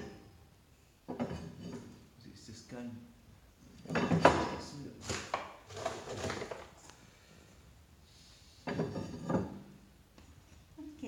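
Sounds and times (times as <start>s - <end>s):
short knocks and scrapes: 1.1s - 2.0s, 3.7s - 6.8s, 8.6s - 9.7s.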